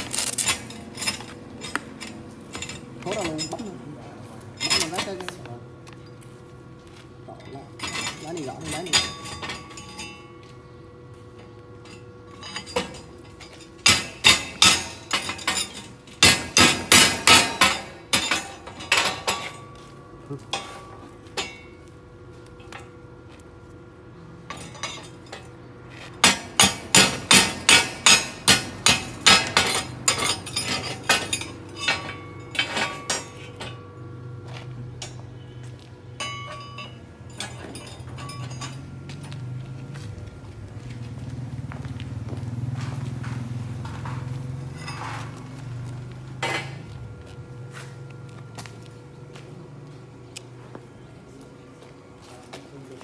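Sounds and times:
chipping hammer tapping steel: 26.2s - 33.8s
steel plate ringing: 26.2s - 34.0s, 36.2s - 39.0s.

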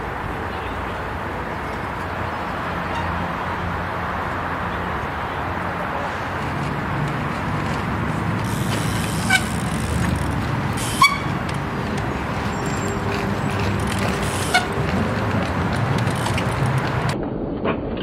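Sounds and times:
low street rumble: 0.0s - 17.2s.

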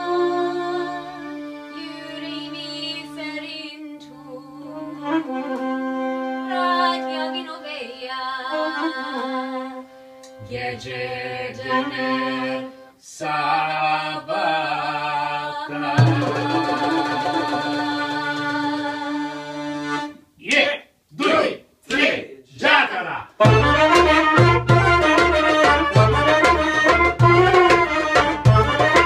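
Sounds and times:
small acoustic band playing: 15.8s - 20.3s, 23.4s - 29.0s.

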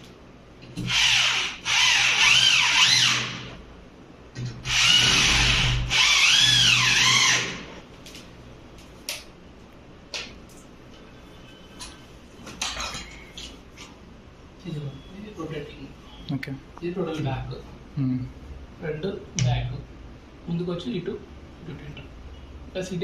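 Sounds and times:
electric drill boring into brick: 0.8s - 3.5s, 4.6s - 7.7s.

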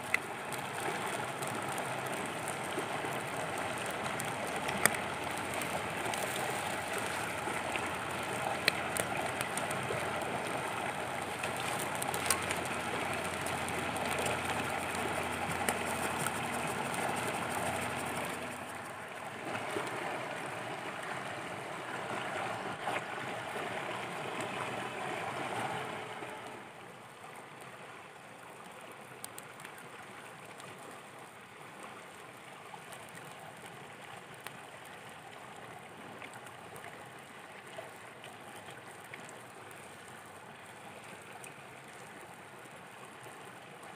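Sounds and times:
wood fire crackling and popping: 0.0s - 18.9s
food frying on hot stone: 0.0s - 19.0s.

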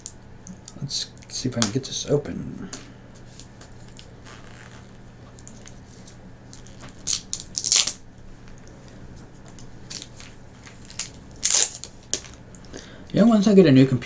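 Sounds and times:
plastic wrapper tearing: 6.5s - 8.0s, 9.9s - 12.4s.

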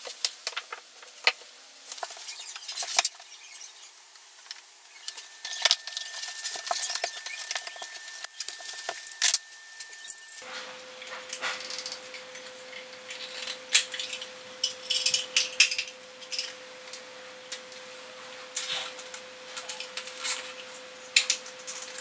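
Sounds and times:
paper rustling: 1.9s - 3.7s, 4.4s - 10.8s.

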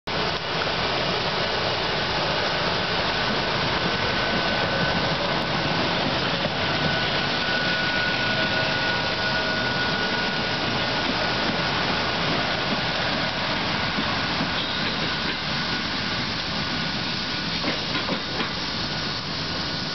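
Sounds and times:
train wheels rumbling on rail: 0.1s - 19.9s
thin high whine: 2.5s - 11.3s.

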